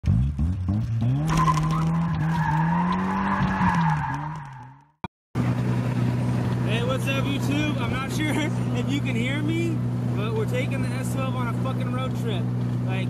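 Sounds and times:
car engine revving: 0.0s - 4.8s
steady engine drone: 5.4s - 13.0s.

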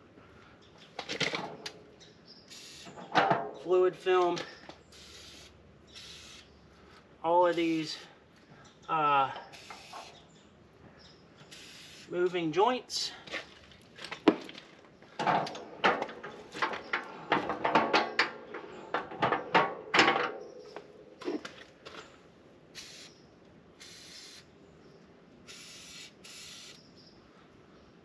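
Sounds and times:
metal joints knocking and creaking: 3.0s - 3.6s, 14.0s - 22.0s
aerosol can spraying: 22.8s - 23.1s, 25.5s - 26.8s.

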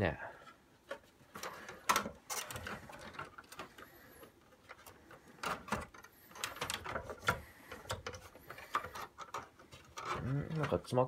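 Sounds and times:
hard plastic clicks and knocks: 0.8s - 3.8s.

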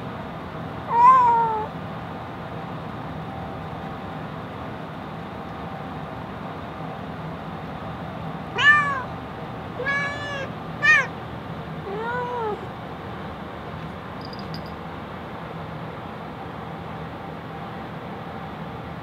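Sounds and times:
cat meowing: 0.9s - 1.7s, 8.5s - 9.1s, 9.8s - 11.2s, 11.8s - 12.7s.

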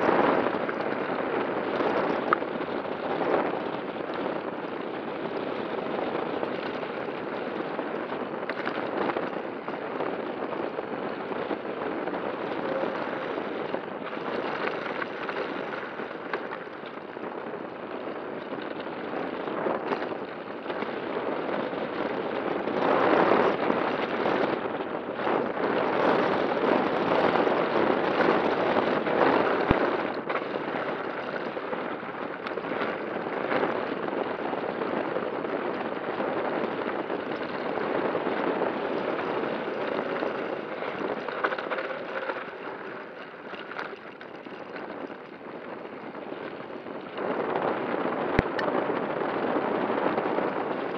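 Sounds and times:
bike rattling and knocking: 0.0s - 50.9s
tyres crunching over dirt: 11.3s - 17.9s, 36.8s - 46.2s.

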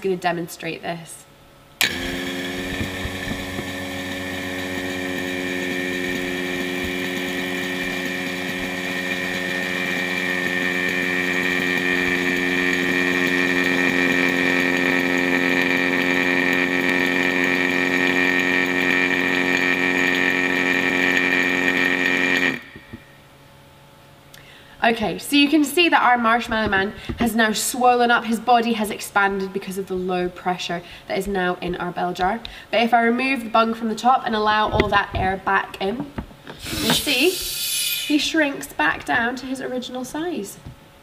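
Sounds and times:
electric vacuum pump running: 1.6s - 29.5s, 33.6s - 39.6s.

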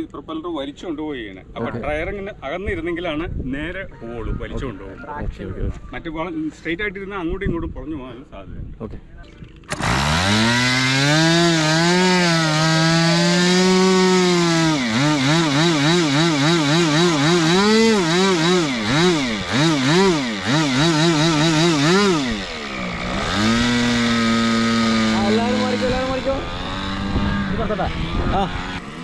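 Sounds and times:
model airplane engine revving: 9.7s - 29.0s.

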